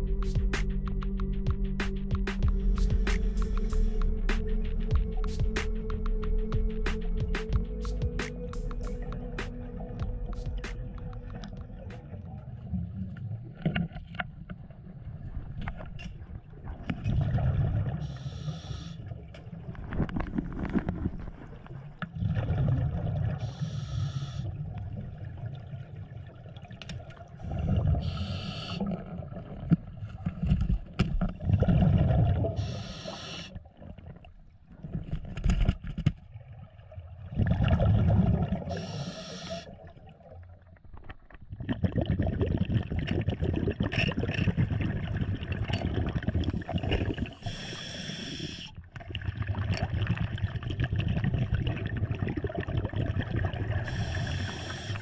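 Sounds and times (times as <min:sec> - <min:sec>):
exhaled bubbles underwater: 0:08.5 - 0:35.1, 0:36.3 - 0:55.0
regulator hiss: 0:32.6 - 0:33.5, 0:38.7 - 0:39.7, 0:47.4 - 0:48.7, 0:53.9 - 0:55.0.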